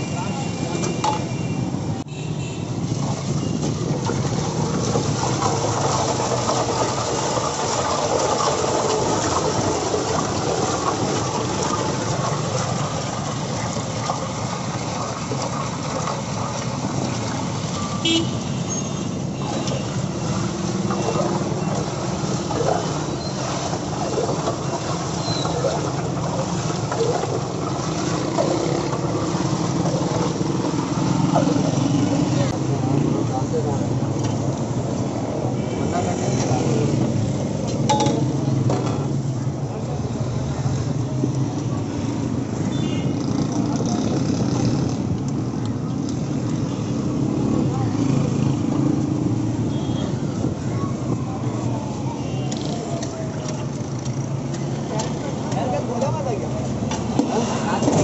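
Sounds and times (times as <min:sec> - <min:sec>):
passing vehicle engines: 0:27.9 - 0:58.0.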